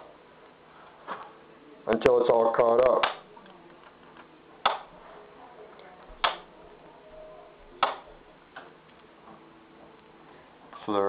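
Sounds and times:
switch machine clicking: 6.2 - 6.4.

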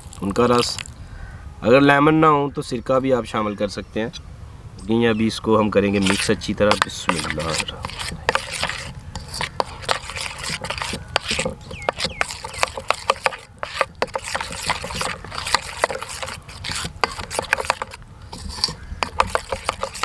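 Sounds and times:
spoon scraping batter: 5.7 - 20.0.

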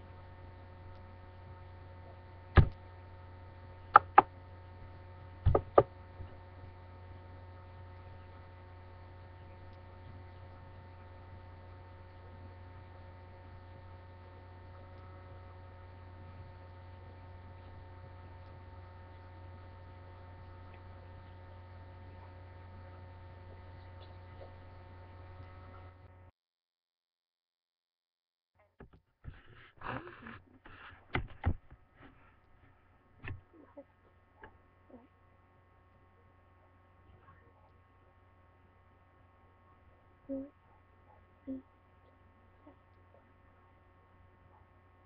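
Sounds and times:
electrical mains hum: 0.0 - 26.3, 29.3 - 45.0
sharp knocks: 5.5 - 5.9.

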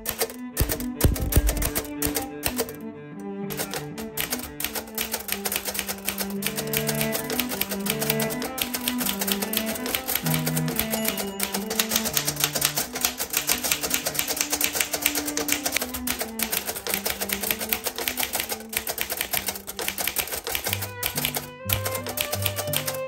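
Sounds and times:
typewriter keystrokes clattering: 0.0 - 2.8, 3.5 - 23.0
background music: 0.0 - 23.0.

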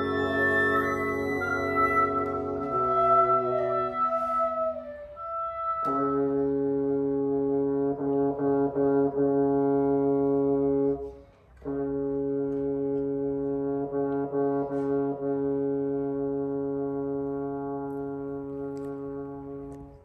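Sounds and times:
woodwind quintet sustained chord: 0.0 - 11.0.

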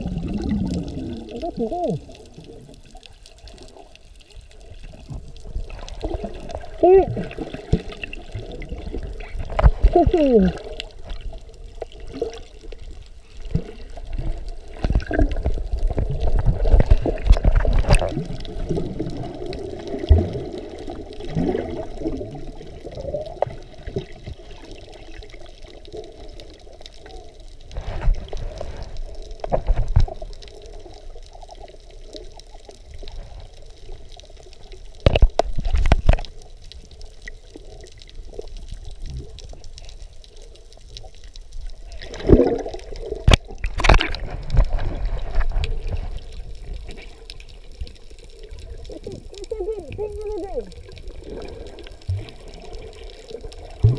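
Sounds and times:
water sloshing and bubbling: 0.0 - 53.9.

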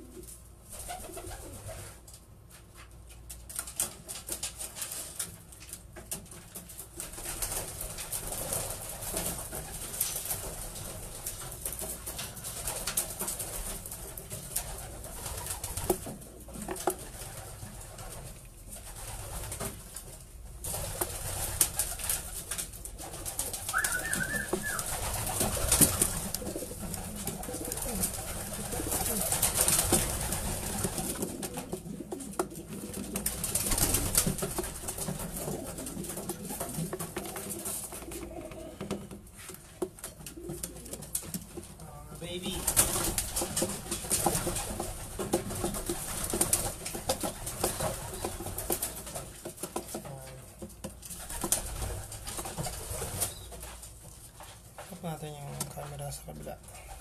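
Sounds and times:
pigeons cooing: 0.0 - 2.0, 21.0 - 39.4, 40.1 - 41.5, 42.6 - 49.3, 51.2 - 53.8.

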